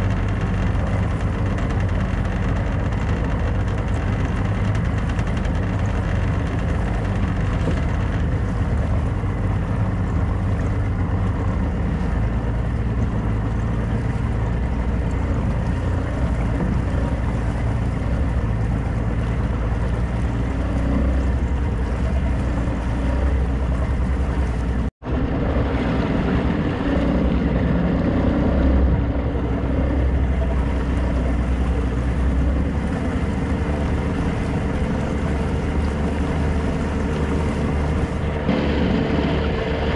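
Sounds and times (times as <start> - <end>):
motorboat engine droning: 0.0 - 39.9
water rushing: 0.0 - 39.9
wind: 0.0 - 39.9.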